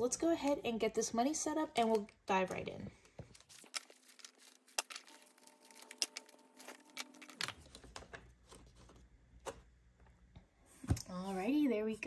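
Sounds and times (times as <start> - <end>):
paper money crinkling: 1.8 - 9.0.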